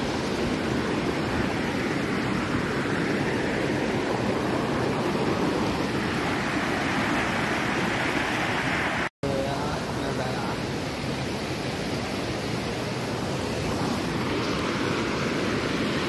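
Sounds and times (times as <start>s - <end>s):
water rushing over boulders: 0.0s - 16.0s.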